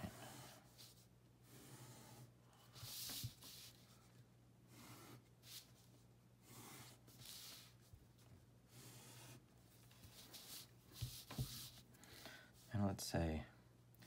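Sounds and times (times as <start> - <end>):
pen scratching on paper: 0.0 - 3.8, 4.7 - 5.7, 6.4 - 7.8, 8.7 - 11.8.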